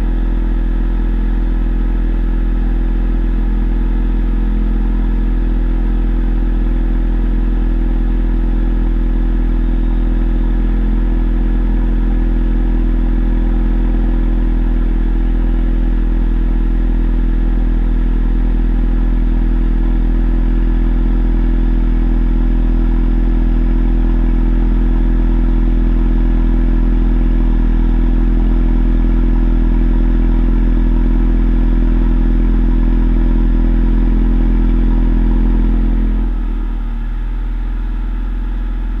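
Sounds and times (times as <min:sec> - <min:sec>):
car engine idling: 0:00.0 - 0:39.0.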